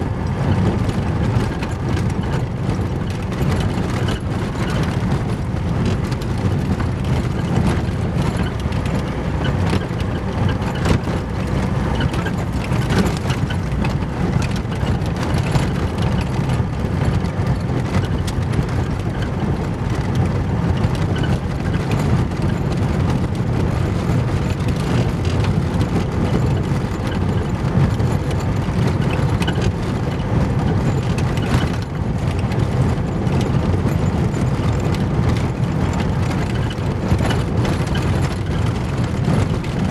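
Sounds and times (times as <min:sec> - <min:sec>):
tyres rumbling on gravel: 0:00.0 - 0:39.9.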